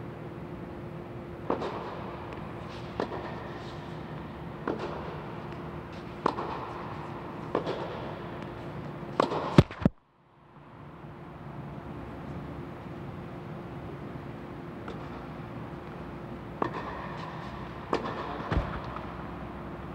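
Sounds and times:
steady hum: 0:00.0 - 0:19.9
tennis ball struck by racquets: 0:01.4 - 0:09.9, 0:16.5 - 0:19.1.

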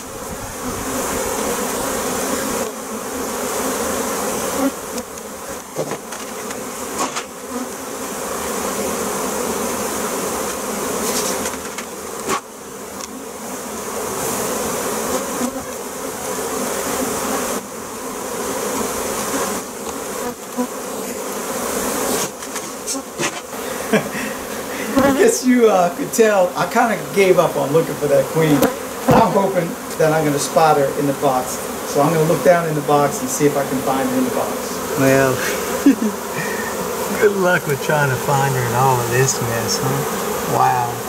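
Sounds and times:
bees buzzing: 0:00.0 - 0:41.0
frames knocking on wooden hive: 0:05.0 - 0:07.4, 0:28.4 - 0:30.0.

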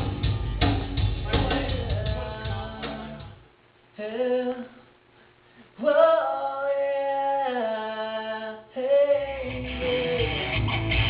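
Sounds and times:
man singing long notes: 0:01.2 - 0:03.4, 0:05.8 - 0:10.9.

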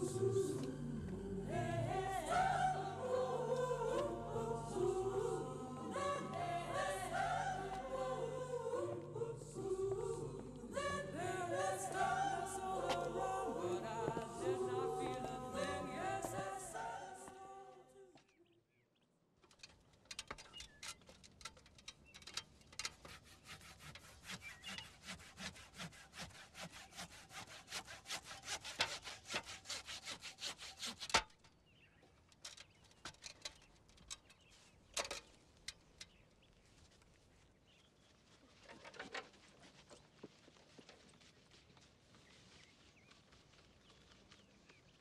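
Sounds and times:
scrapes and knocks: 0:19.4 - 0:31.5
saw cutting wood: 0:22.8 - 0:31.3.

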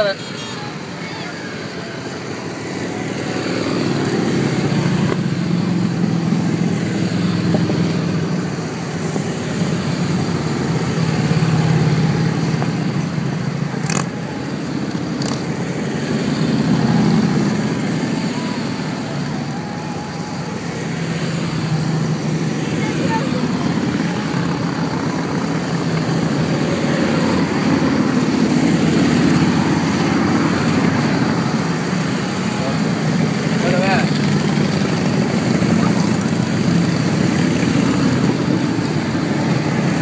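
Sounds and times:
motorcycles riding past: 0:00.0 - 0:40.0.

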